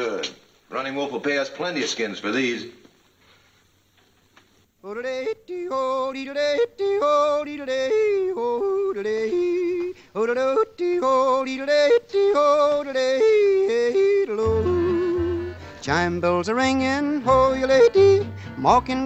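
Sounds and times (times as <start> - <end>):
man yodeling: 4.8 - 19.0.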